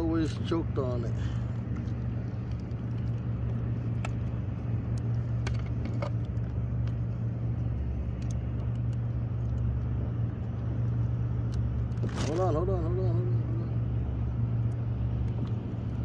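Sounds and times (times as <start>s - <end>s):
low motor drone: 0.0s - 16.0s
small clicks and taps: 1.7s - 7.0s, 8.1s - 9.8s.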